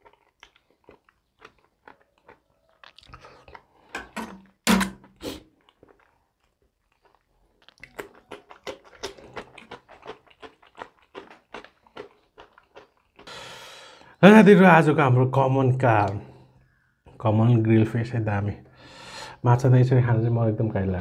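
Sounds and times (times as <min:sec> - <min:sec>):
crisp crunching of chewing: 0:00.0 - 0:03.9, 0:05.5 - 0:13.4
loud bites and mouth sounds: 0:00.0 - 0:03.9, 0:05.1 - 0:14.2.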